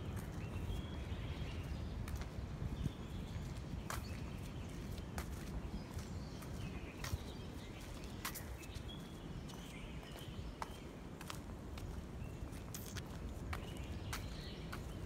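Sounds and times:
birds chirping: 0.0 - 15.0.

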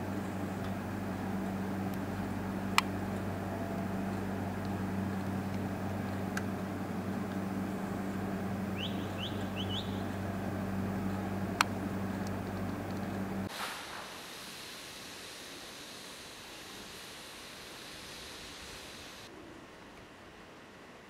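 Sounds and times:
street ambience hum and hiss: 0.0 - 21.0
short rising bird chirps: 8.8 - 10.2.

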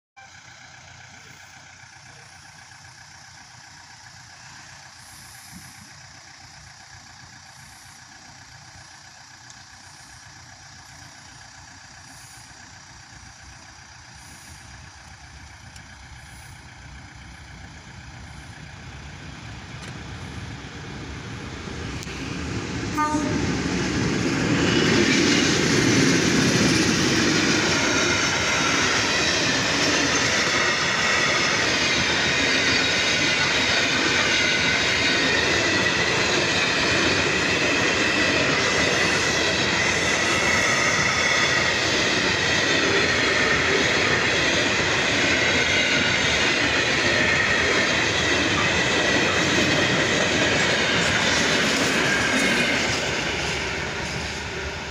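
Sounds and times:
diesel locomotive engines: 0.2 - 54.9
train wheels on rails: 0.2 - 54.9
high ringing tone: 22.9 - 23.8.

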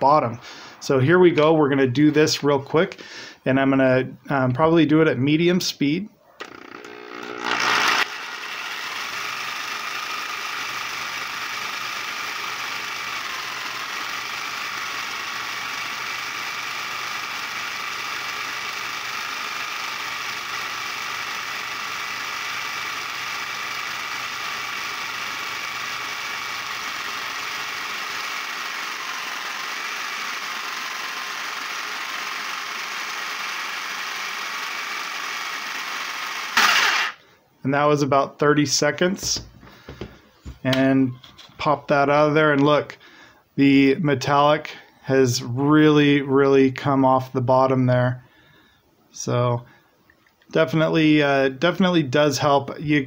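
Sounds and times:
reciprocating saw motor whine: 6.4 - 37.2.

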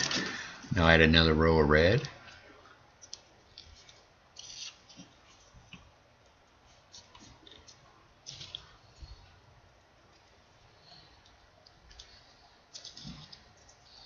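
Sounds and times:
paper rustling and clicking: 3.0 - 5.9, 6.8 - 9.1, 11.2 - 14.0.

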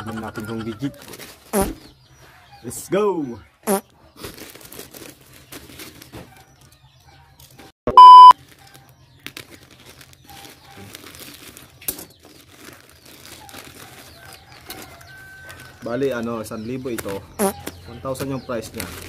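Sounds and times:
plastic pouch rustling: 4.2 - 6.1, 8.4 - 15.9, 18.6 - 19.0
censor bleep: 7.9 - 8.3.

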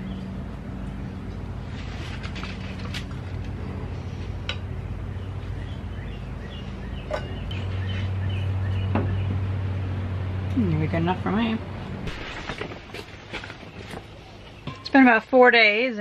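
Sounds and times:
steady low hum: 0.0 - 15.9.

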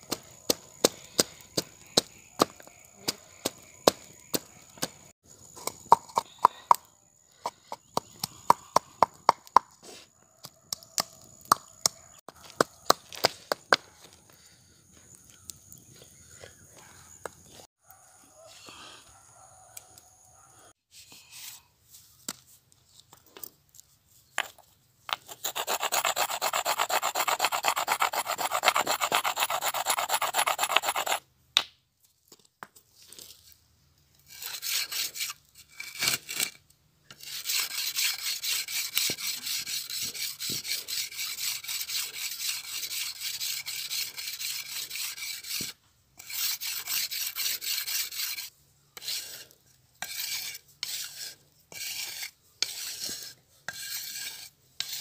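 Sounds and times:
knife scraping on sharpening board: 25.3 - 31.2, 34.3 - 55.0.

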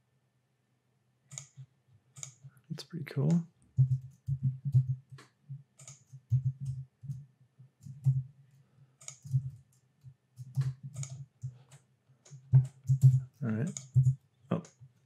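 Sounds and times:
keyboard and mouse clicking: 1.3 - 1.6, 2.2 - 2.4, 3.3 - 7.2, 7.8 - 8.2, 9.0 - 14.8.

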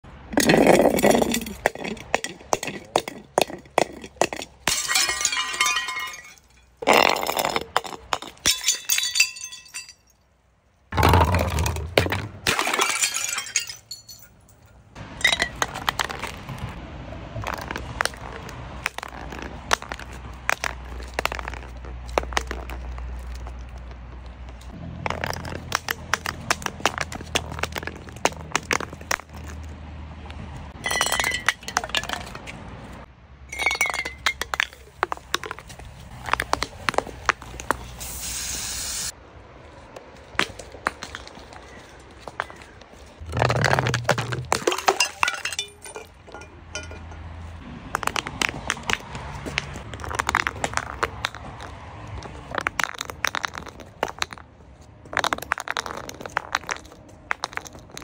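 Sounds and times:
glass bottles clinking down steps: 0.4 - 10.2, 11.0 - 14.6, 15.2 - 16.2, 30.8 - 32.4, 33.5 - 35.2, 43.2 - 47.3
glass breaking: 4.7 - 10.1, 11.2 - 14.4, 43.3 - 47.2.

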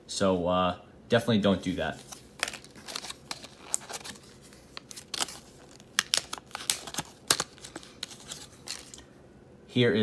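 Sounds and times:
plastic packaging crinkling: 1.9 - 9.1.

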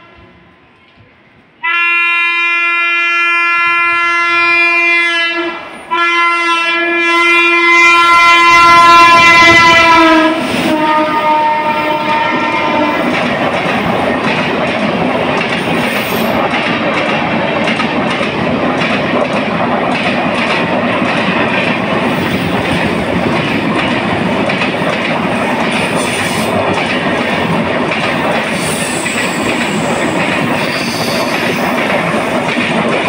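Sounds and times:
train wheels clattering over rail joints: 11.5 - 33.0.

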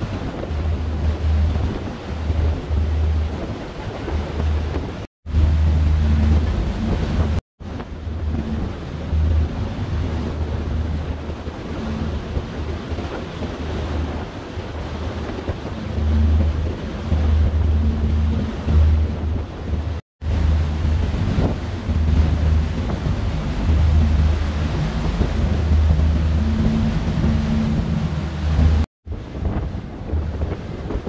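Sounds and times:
rushing water: 0.0 - 31.0
wind buffeting microphone: 0.0 - 31.0
low rumble: 5.3 - 12.9, 14.9 - 28.9.

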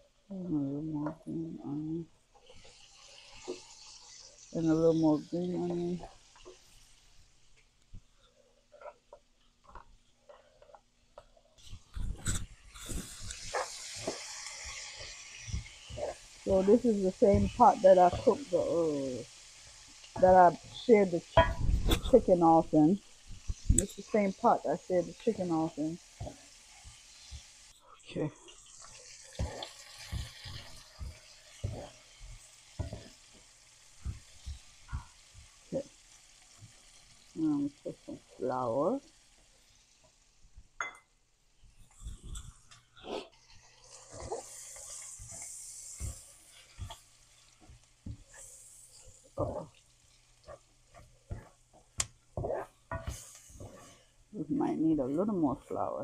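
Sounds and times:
vegetables sizzling in a pan: 0.0 - 56.0
wooden spoon knocking: 21.4 - 21.7.

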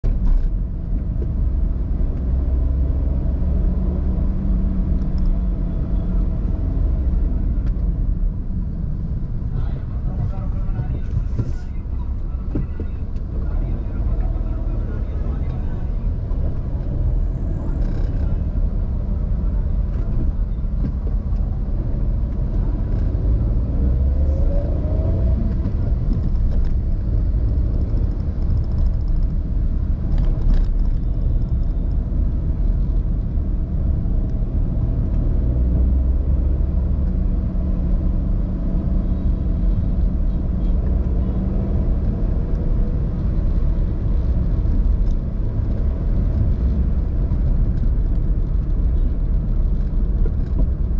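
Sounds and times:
car engine and tyre rumble: 0.0 - 50.9.

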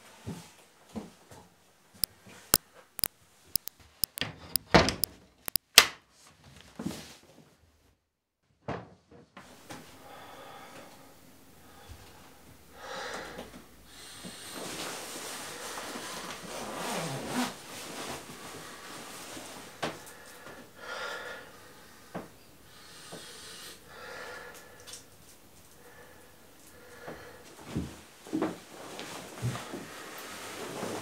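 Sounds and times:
man breathing: 10.0 - 14.4, 20.0 - 25.0, 25.8 - 27.5.

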